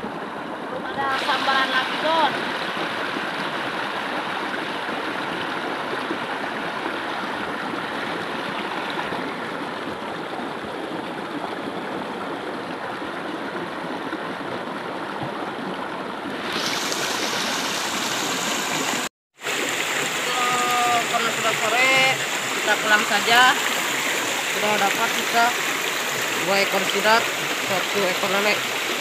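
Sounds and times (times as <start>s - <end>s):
stream gurgling over stones: 0.0s - 29.0s.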